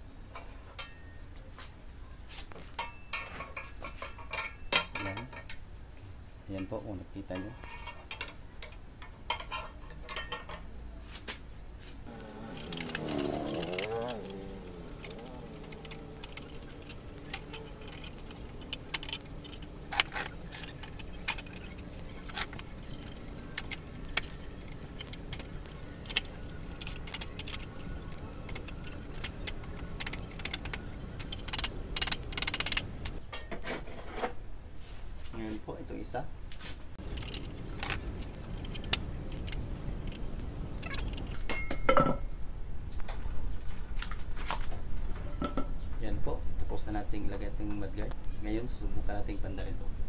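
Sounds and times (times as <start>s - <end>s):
metallic clinks of hand tools: 12.1s - 33.2s, 37.0s - 42.0s
metallic jingle: 12.1s - 33.2s, 37.0s - 42.0s.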